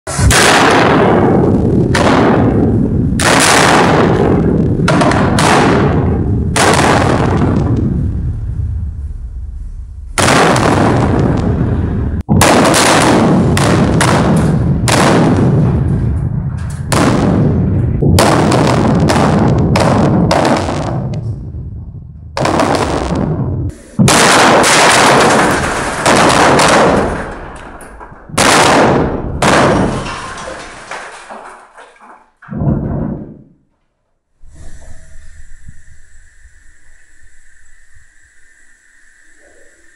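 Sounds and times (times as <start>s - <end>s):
blasting charges detonating: 0.1s - 30.6s
deep rumble: 0.1s - 30.6s, 34.4s - 39.9s
echoing explosions in tunnel: 0.1s - 33.7s.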